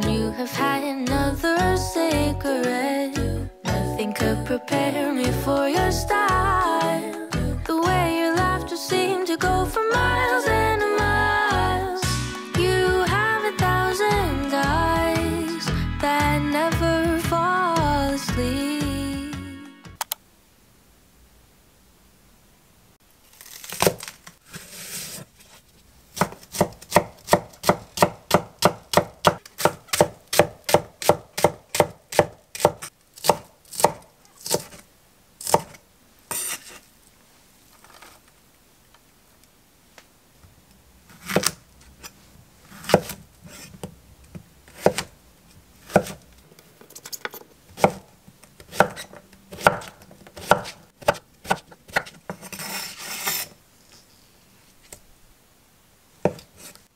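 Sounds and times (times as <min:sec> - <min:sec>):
knife chopping on wooden board: 0:26.2 - 0:34.7, 0:42.8 - 0:43.2, 0:44.7 - 0:45.1, 0:45.8 - 0:46.2, 0:48.6 - 0:52.5, 0:56.3 - 0:56.5.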